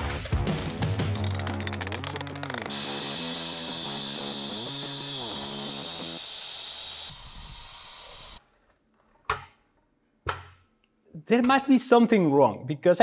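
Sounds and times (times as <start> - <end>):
mitre saw cutting metal: 2.4 - 8.5.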